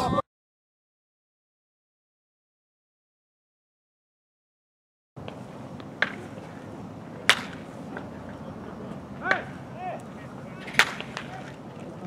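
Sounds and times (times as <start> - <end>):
baseball bat hitting ball: 5.2 - 8.4, 9.0 - 11.7
murmur of voices: 5.6 - 12.0.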